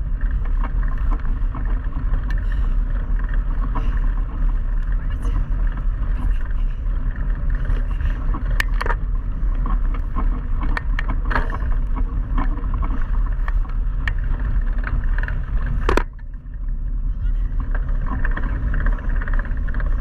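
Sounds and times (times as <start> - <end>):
bike clicks and rattles: 0.0 - 20.0
wind buffeting microphone: 0.0 - 20.0.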